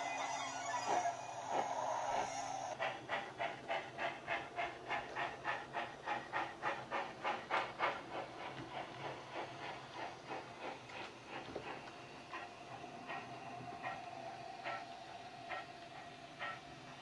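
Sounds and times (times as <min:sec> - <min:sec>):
steady steam hiss: 0:00.0 - 0:17.0
steam locomotive chuffs: 0:00.0 - 0:17.0.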